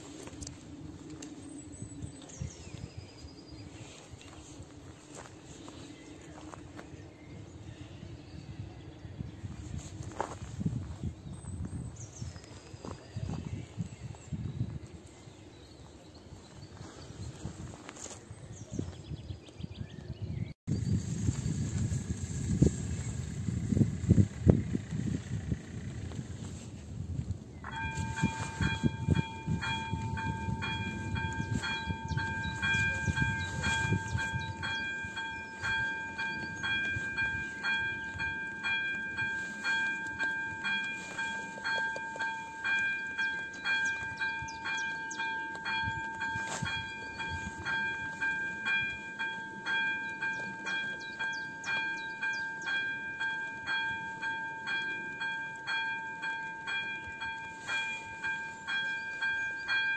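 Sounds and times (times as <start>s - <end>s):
level crossing bell ringing: 27.7s - 59.9s.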